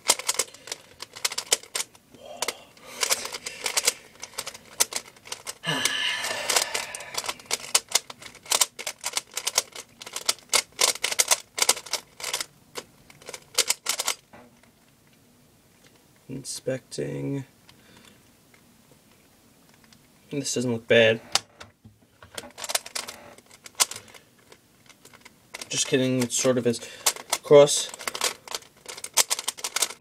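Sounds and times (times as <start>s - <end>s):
puzzle cube clicking as turned: 0.0s - 14.2s, 22.4s - 30.0s.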